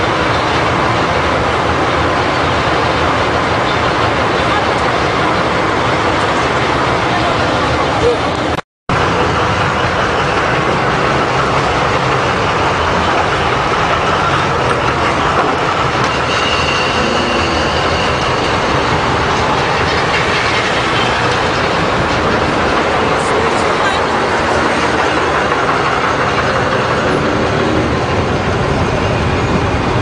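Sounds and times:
truck engines rumbling with rattling: 0.0s - 30.0s
faint high squeal: 16.1s - 18.9s.

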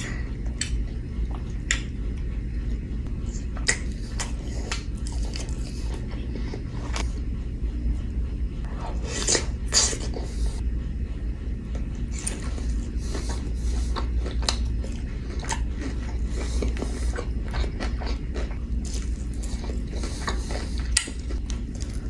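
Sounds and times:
chewing crunchy food: 0.0s - 7.1s, 11.7s - 22.0s
steady low hum: 0.0s - 22.0s.

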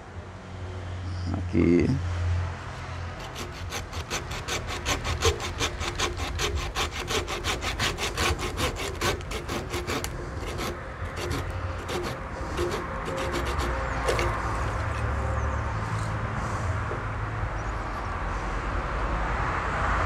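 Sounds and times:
hand saw cutting wood: 3.2s - 15.4s.

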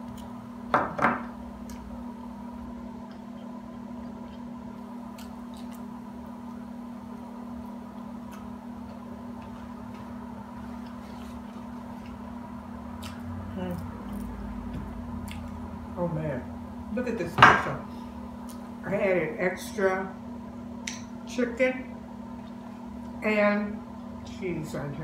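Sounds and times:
steady background hum: 0.0s - 25.0s
quiet chewing: 3.0s - 6.6s, 7.9s - 12.2s, 13.0s - 14.4s, 15.2s - 15.6s, 22.3s - 23.2s.

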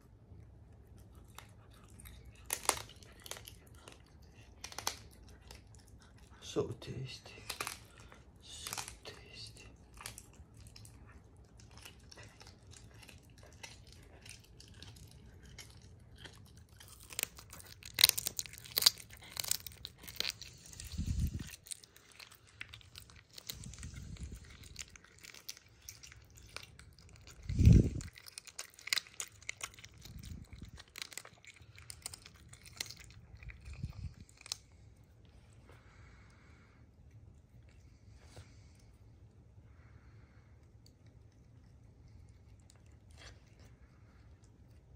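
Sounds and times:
animal crunching bone: 0.6s - 36.1s.

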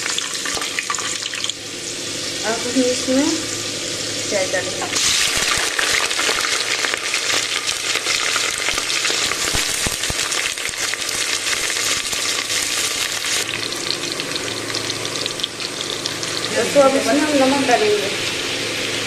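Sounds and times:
onions sizzling in hot oil: 0.0s - 19.0s.

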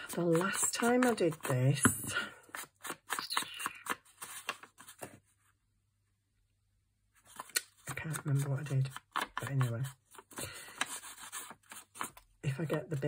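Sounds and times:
ink dauber dabbing on paper: 0.0s - 2.1s
paper rustling: 0.0s - 5.6s, 7.2s - 13.0s.

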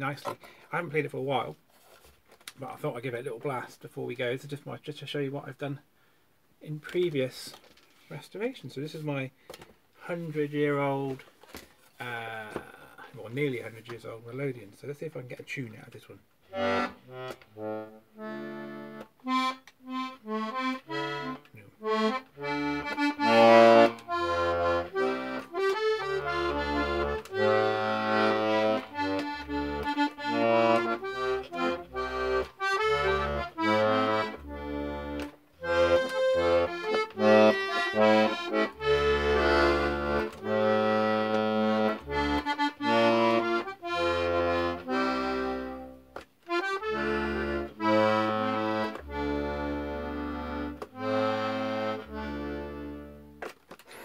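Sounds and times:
button accordion playing a tune: 16.4s - 54.0s.

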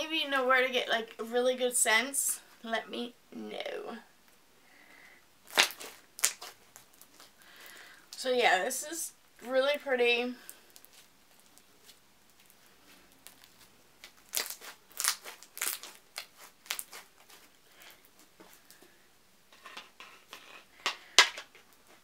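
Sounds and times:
slime crackling and popping: 5.4s - 7.4s, 10.5s - 17.5s.

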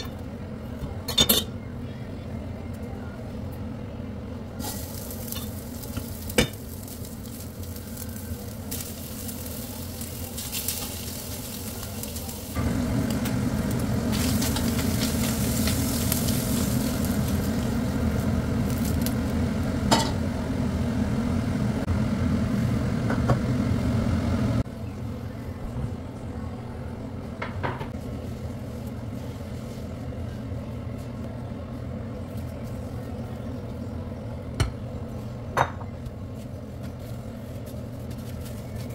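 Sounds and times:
meat sizzling in a pan: 4.6s - 19.3s.

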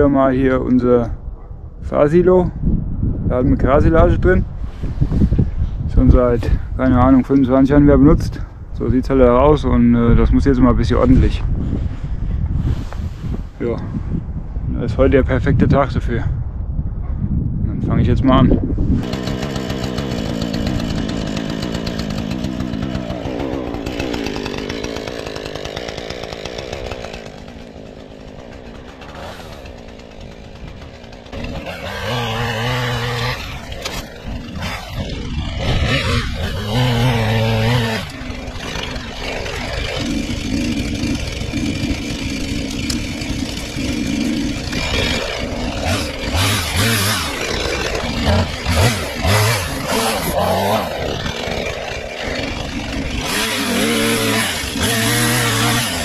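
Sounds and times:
chainsaw revving and idling: 19.0s - 56.0s.

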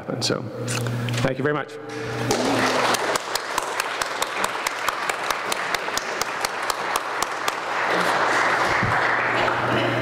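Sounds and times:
close hands clapping fast: 2.6s - 9.7s
audience applauding: 2.6s - 10.0s.

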